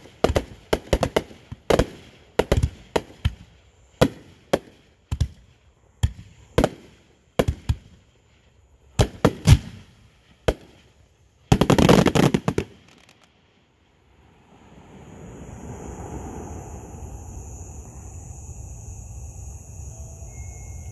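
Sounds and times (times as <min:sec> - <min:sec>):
faint steady rumble: 0:12.5 - 0:20.9.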